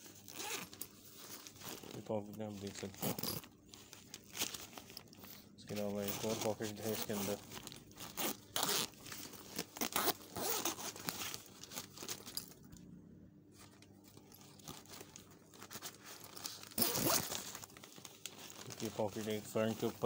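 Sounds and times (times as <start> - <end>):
bag fabric rustling: 0.0 - 12.6, 13.6 - 20.0
zipper being pulled: 0.2 - 0.8, 3.0 - 3.5, 8.0 - 9.0, 9.6 - 11.1, 16.6 - 17.6.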